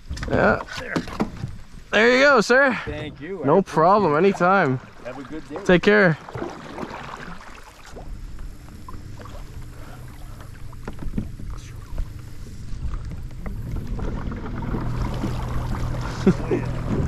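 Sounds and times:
water washing along hull: 0.0 - 17.0
electric motor humming: 8.0 - 17.0.

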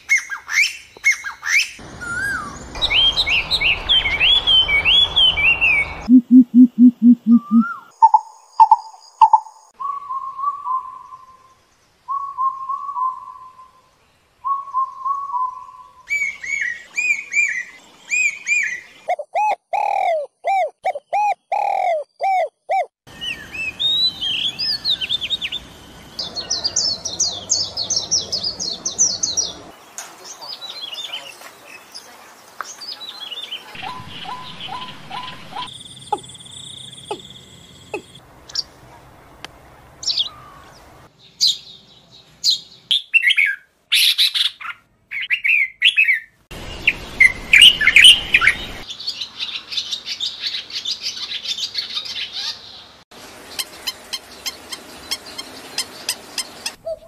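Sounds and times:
bird calling: 0.0 - 11.5, 14.5 - 25.6, 33.4 - 38.7, 40.0 - 41.6, 53.5 - 57.0
songbirds singing: 0.0 - 57.0.

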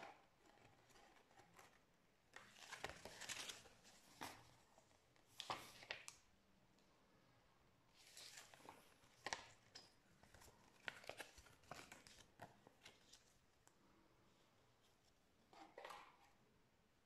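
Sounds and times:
paper rustling and crinkling: 0.0 - 6.2, 8.0 - 13.5.

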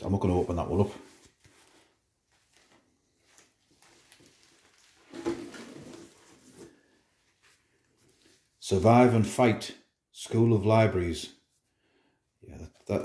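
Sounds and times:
rummaging in cardboard box: 3.6 - 7.6.

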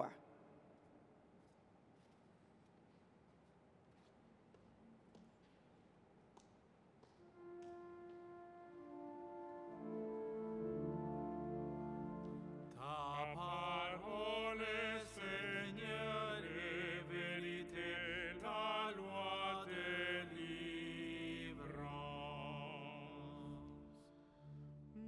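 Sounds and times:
pipe organ chords: 7.4 - 25.0
solo voice singing chant: 12.7 - 25.0.

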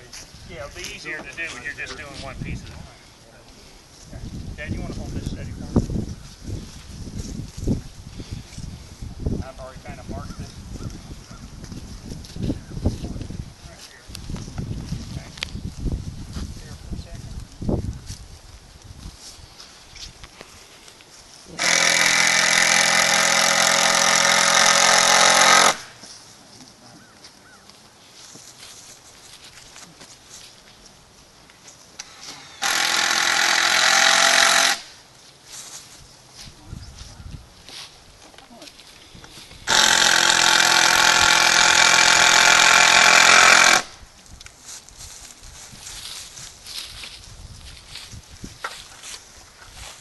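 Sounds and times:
power drill driving a screw: 21.6 - 25.8, 32.0 - 34.9, 39.7 - 43.9.

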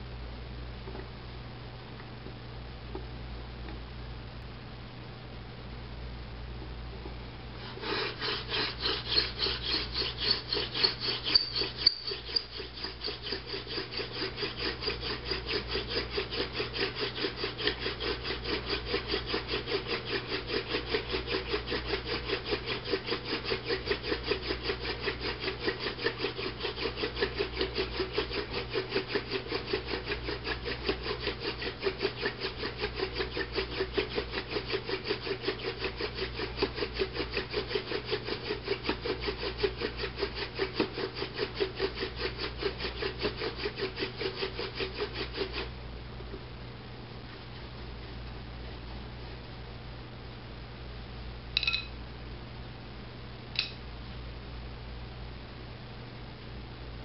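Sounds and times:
hand drill spindle grinding wood: 7.6 - 45.7.

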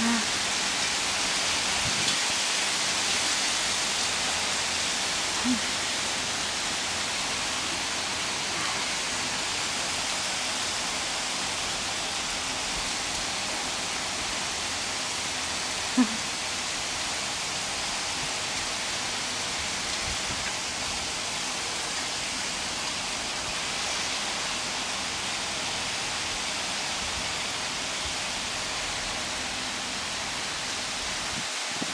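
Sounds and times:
heavy rain and hail on paving: 0.0 - 31.9.

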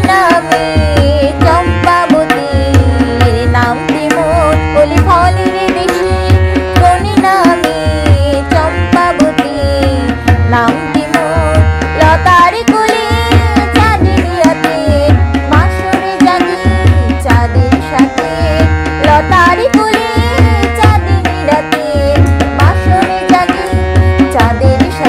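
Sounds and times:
harmonium melody: 0.0 - 25.0.

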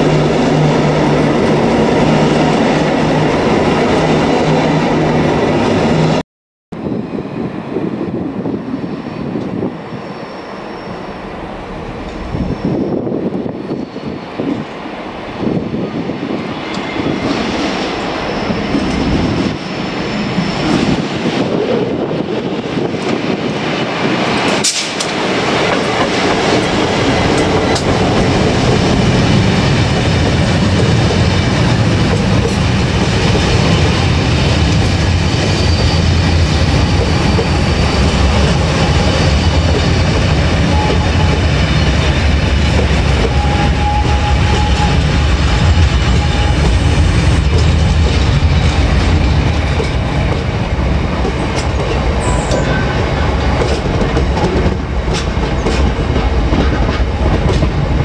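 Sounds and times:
freight train wagons rolling past: 16.4 - 58.0.

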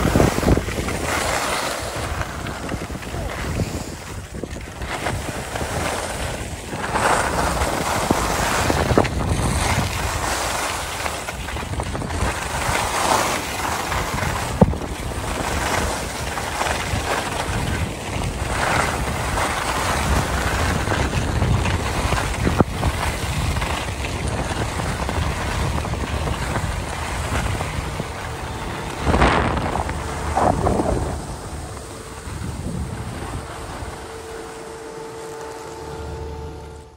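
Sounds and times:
skis scraping over snow: 0.0 - 36.9
wind rushing over microphone: 0.0 - 36.9.

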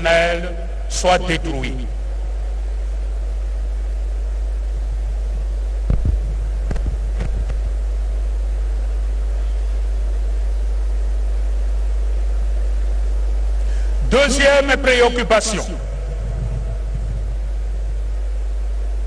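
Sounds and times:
low electrical hum: 0.0 - 19.0
dull thumps: 5.9 - 7.6.

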